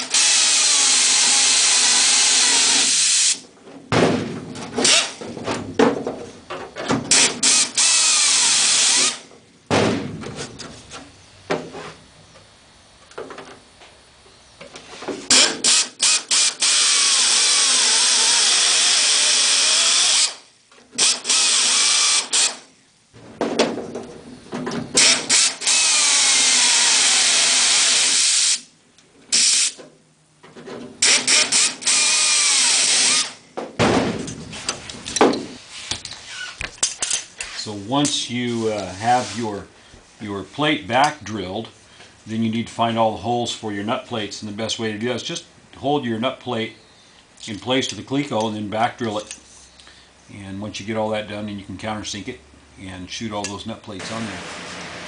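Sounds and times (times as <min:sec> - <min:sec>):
drill trigger bursts: 0:00.0 - 0:03.4, 0:07.1 - 0:09.2, 0:15.3 - 0:22.7, 0:25.0 - 0:28.7, 0:29.3 - 0:29.8, 0:31.0 - 0:33.4
pneumatic drill hiss and whine: 0:00.0 - 0:03.4, 0:04.8 - 0:05.2, 0:07.1 - 0:09.3, 0:15.3 - 0:22.7, 0:25.0 - 0:28.7, 0:29.3 - 0:29.8, 0:31.0 - 0:33.4, 0:36.2 - 0:37.8.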